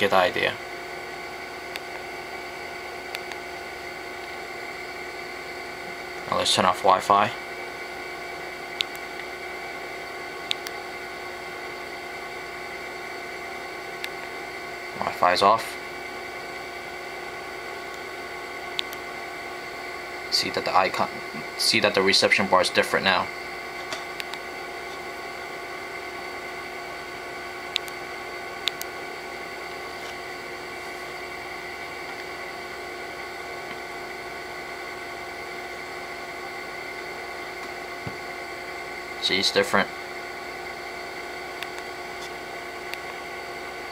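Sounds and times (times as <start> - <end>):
faint hum: 0.0 - 43.9.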